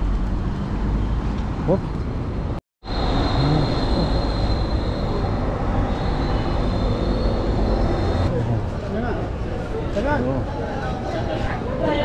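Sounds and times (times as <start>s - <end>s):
city street traffic: 0.0s - 12.0s
thin high whine: 2.8s - 8.3s.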